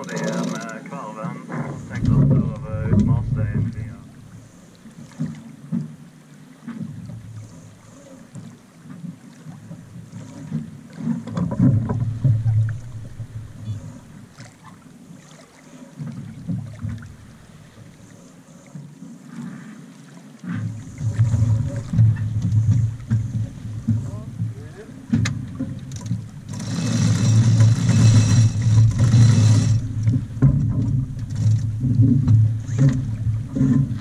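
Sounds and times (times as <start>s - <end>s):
wind buffeting microphone: 0.0s - 4.1s.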